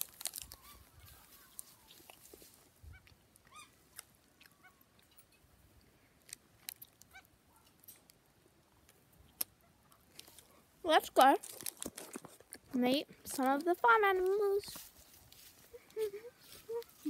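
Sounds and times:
poultry calling: 0.5 - 2.1, 2.8 - 3.8, 4.4 - 4.9.

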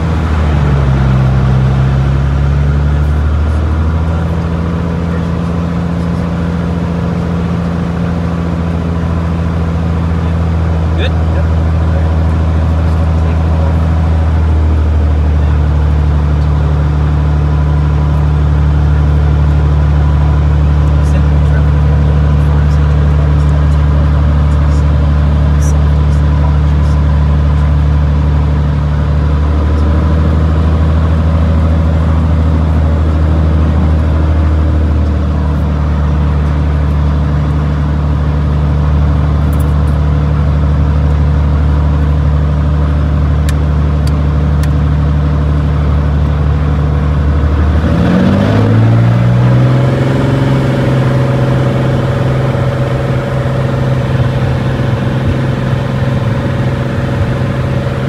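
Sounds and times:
engine running and speeding up: 0.0 - 58.0.

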